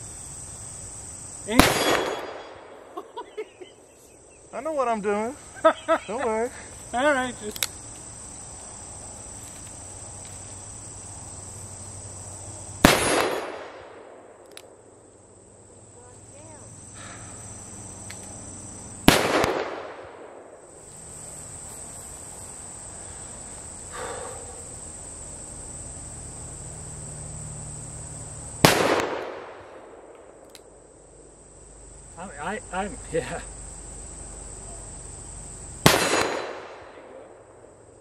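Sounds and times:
revolver shots with echo: 0:01.6 - 0:02.6.

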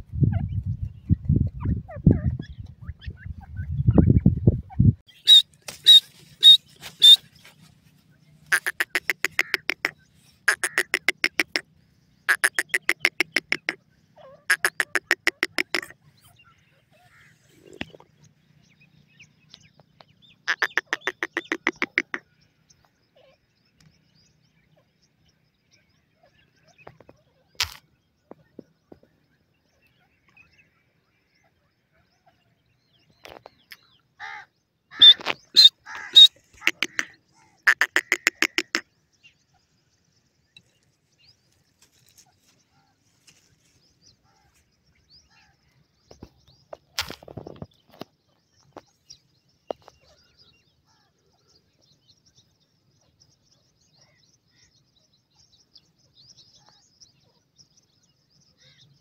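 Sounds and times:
francolin calling: 0:05.1 - 0:07.4, 0:08.4 - 0:16.4, 0:20.3 - 0:22.3, 0:33.7 - 0:39.7.

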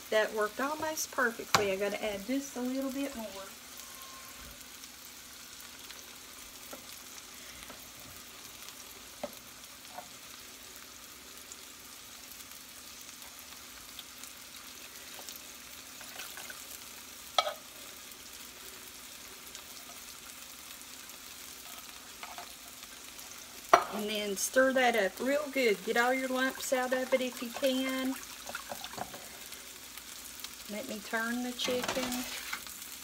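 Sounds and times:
chicken sizzling in a skillet: 0:00.0 - 0:33.0.

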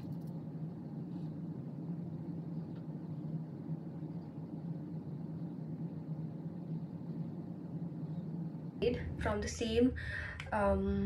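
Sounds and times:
room ventilation hum: 0:00.0 - 0:11.0.

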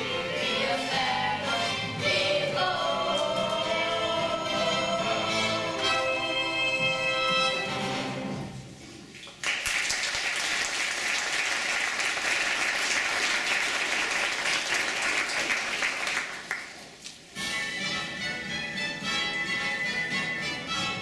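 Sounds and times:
audience applauding: 0:09.3 - 0:16.9.

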